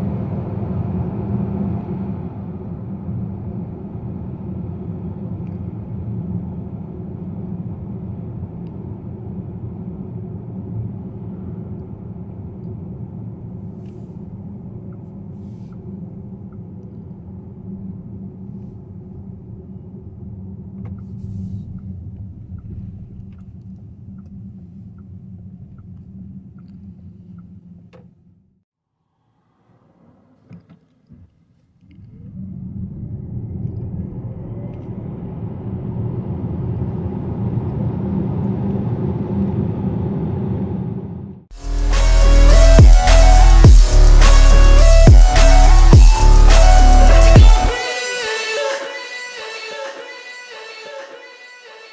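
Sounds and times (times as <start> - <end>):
car road and tyre rumble: 0.0 - 27.3, 32.1 - 41.4.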